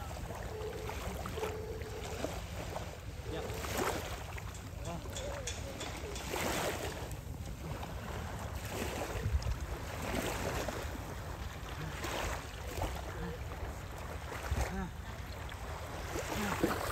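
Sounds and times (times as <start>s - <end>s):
water sloshing from wading: 0.0s - 16.9s
wind rumble on microphone: 5.5s - 16.9s.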